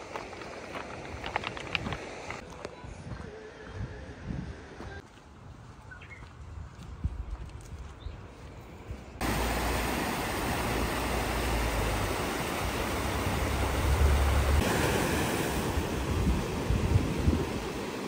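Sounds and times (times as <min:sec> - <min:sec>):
wind rumbling on microphone: 0:00.1 - 0:09.1, 0:10.2 - 0:18.0
river rapids rushing: 0:09.2 - 0:18.0
sea surf washing over rocks: 0:09.2 - 0:18.0.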